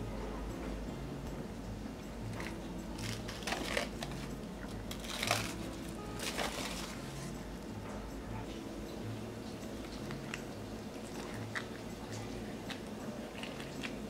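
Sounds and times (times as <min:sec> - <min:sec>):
soft background music: 0:00.0 - 0:14.0
plastic cling wrap crinkling: 0:02.4 - 0:07.3.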